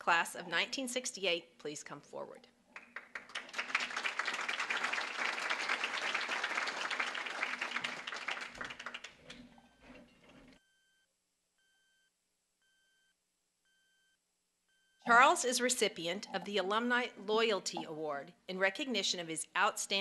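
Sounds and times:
audience applauding: 2.8s - 9.4s.

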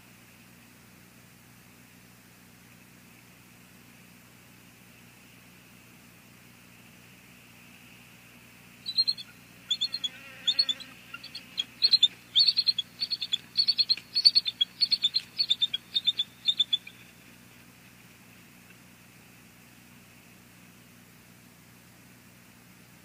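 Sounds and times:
eagles chittering calls: 8.9s - 17.4s.

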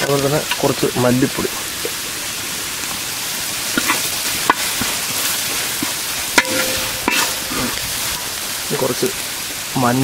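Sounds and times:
food sizzling in oil: 0.0s - 10.0s
metal ladle clicking on pan: 6.4s - 7.8s.

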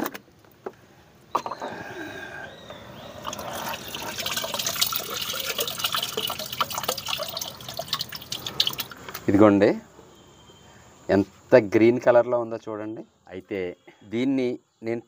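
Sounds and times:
liquid bubbling: 3.1s - 9.0s
liquid splashing and dripping: 3.2s - 9.1s.

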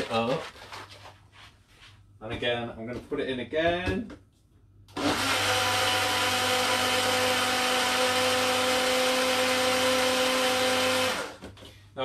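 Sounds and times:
electric blender running: 4.9s - 11.5s.

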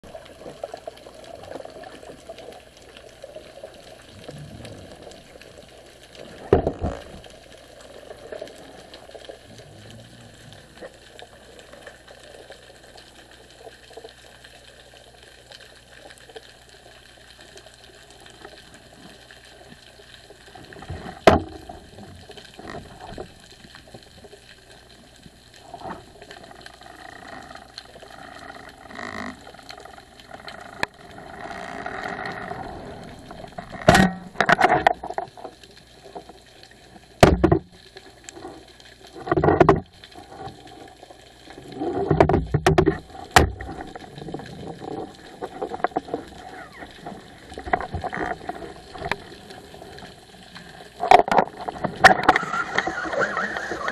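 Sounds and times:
underwater bubbling hiss: 0.0s - 34.4s, 43.0s - 53.9s
sharp knocks: 37.2s - 37.6s.

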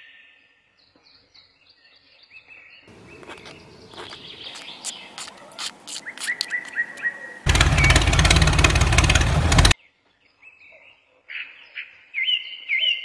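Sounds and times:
birds chirping faintly: 0.8s - 10.7s.

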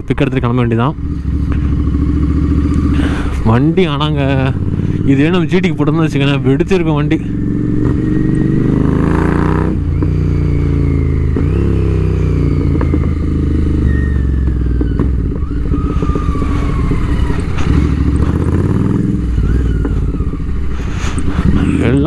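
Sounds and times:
motorcycle engine revving: 0.0s - 22.0s
exhaust crackling pops: 12.5s - 20.5s.

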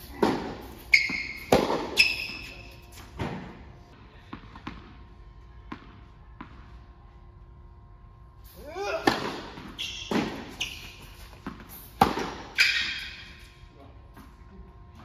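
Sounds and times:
tennis ball bouncing: 0.2s - 2.5s, 4.2s - 5.0s, 5.7s - 6.8s, 9.0s - 13.0s
tennis ball struck by rackets: 0.2s - 2.5s, 9.0s - 13.1s
shoe squeaks on court: 0.8s - 3.1s, 9.6s - 13.5s.

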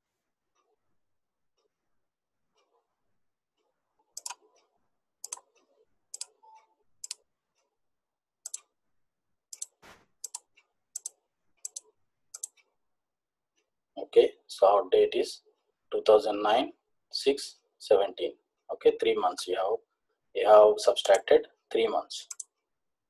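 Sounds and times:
computer mouse clicks: 4.1s - 7.3s, 8.4s - 8.8s, 9.5s - 12.7s, 21.0s - 21.3s, 22.2s - 22.6s.

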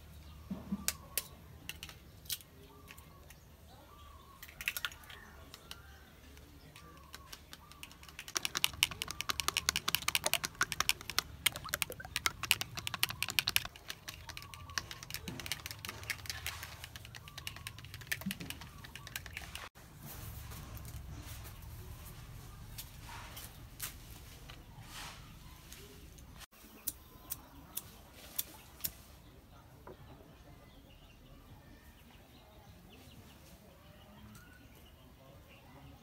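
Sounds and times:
spoon beating eggs in bowl: 7.0s - 19.7s.

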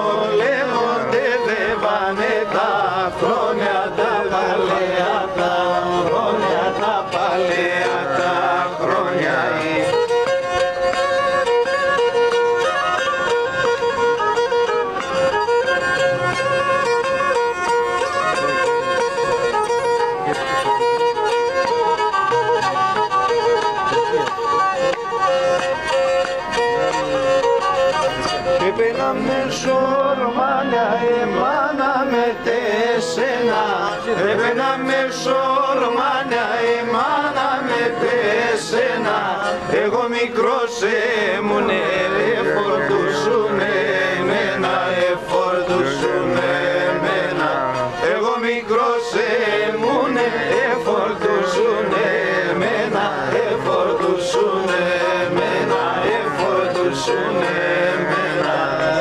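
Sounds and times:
voices singing along: 0.0s - 10.4s, 28.6s - 59.0s
bowed lyra folk tune: 0.0s - 59.0s.

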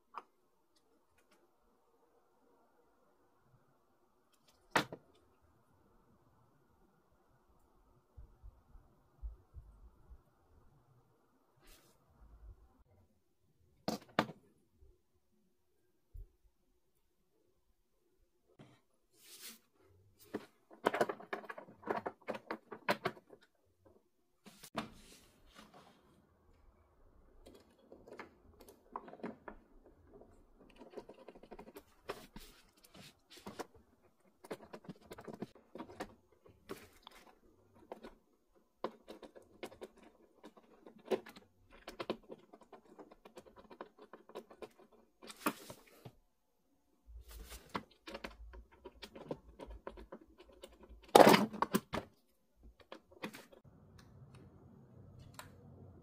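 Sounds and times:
plastic parts clicking and rattling: 20.2s - 24.0s, 27.2s - 46.0s, 47.4s - 53.6s.

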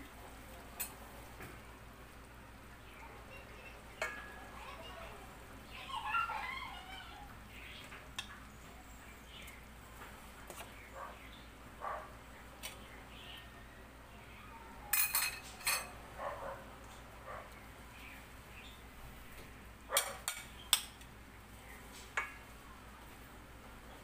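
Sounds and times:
fork clinking on plate and pan: 14.9s - 15.9s.

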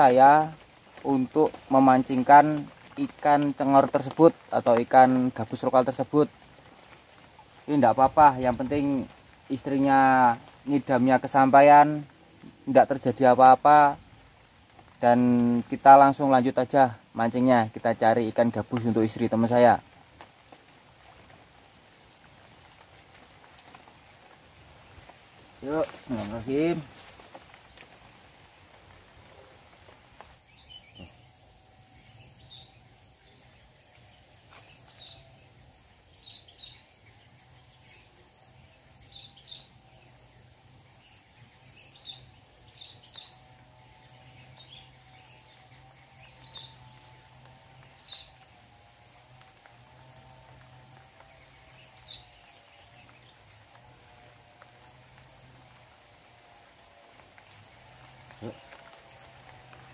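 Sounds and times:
insect drone: 0.0s - 59.9s
bird chirps: 32.0s - 35.5s, 39.0s - 48.4s.

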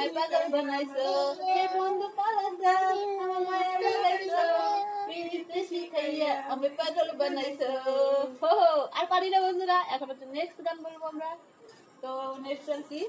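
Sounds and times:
women and child singing: 0.0s - 6.5s.

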